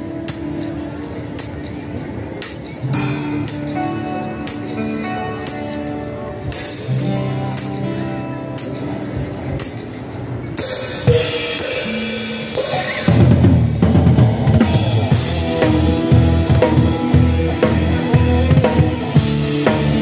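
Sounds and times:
live rock band playing: 0.0 - 20.0
drum kit hits: 11.0 - 20.0.

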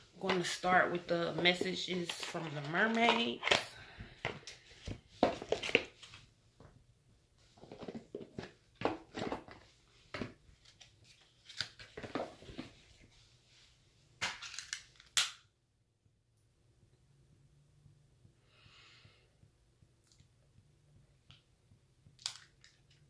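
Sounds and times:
rustling and crinkling: 0.0 - 13.8
small objects clicking: 22.2 - 23.0.

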